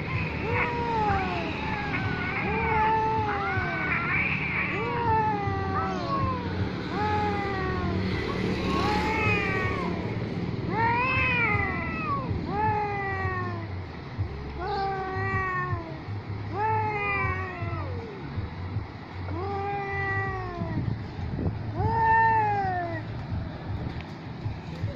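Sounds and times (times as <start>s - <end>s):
cats yowling: 0.0s - 8.0s, 8.6s - 10.0s, 10.7s - 13.7s, 14.6s - 18.2s, 19.3s - 20.8s, 21.8s - 23.1s.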